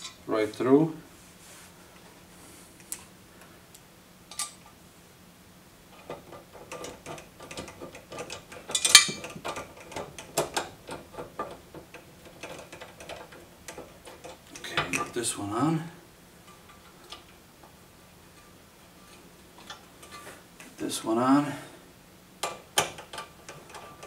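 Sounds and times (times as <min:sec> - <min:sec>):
metal clicks and rattles: 0:05.9 - 0:15.2, 0:22.4 - 0:24.0.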